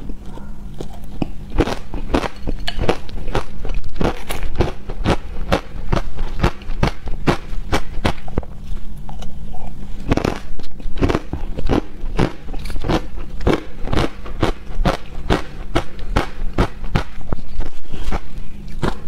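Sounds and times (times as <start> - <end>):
ice crunched between teeth: 10.0 - 17.2.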